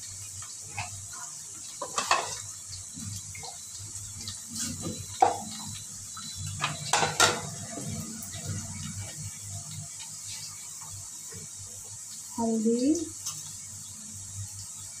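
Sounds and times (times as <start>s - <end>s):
kitchen utensils clinking: 1.8s - 2.5s, 6.5s - 8.1s.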